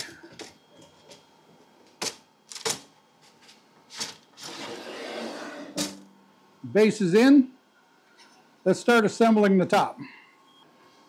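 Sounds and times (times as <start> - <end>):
panel scraping slide: 4.4 - 6.0.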